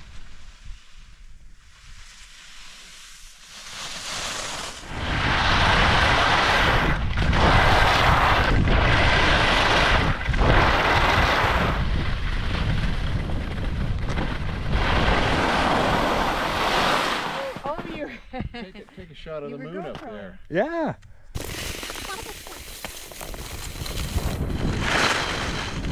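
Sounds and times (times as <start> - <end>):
skis scraping over snow: 0.0 - 18.1, 21.4 - 25.9
wind rushing over microphone: 4.7 - 17.6, 23.1 - 25.9.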